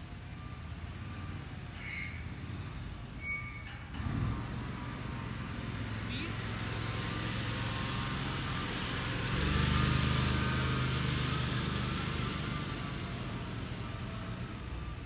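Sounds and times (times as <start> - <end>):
utility vehicle engine passing: 3.9 - 15.0.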